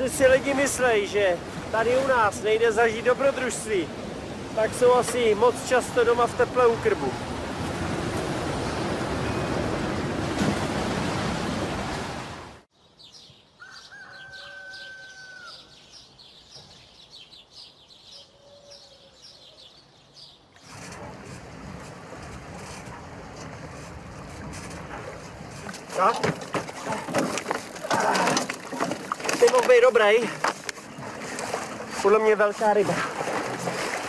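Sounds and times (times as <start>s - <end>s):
waves: 0.0s - 12.7s, 20.6s - 34.0s
birds chirping: 12.7s - 20.6s.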